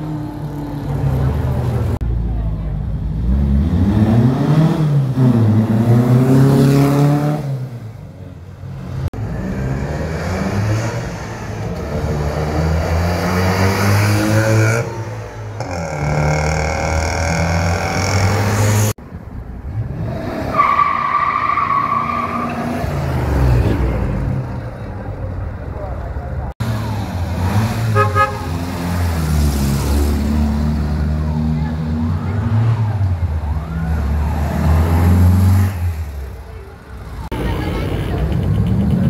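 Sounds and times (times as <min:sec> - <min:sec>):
cars driving past revving: 0:26.6 - 0:39.0.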